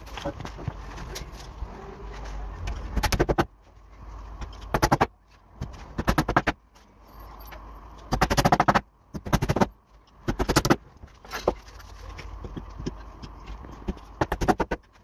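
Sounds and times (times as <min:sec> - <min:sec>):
hammer driving nails into wood: 0:08.1 - 0:10.8, 0:13.9 - 0:14.9.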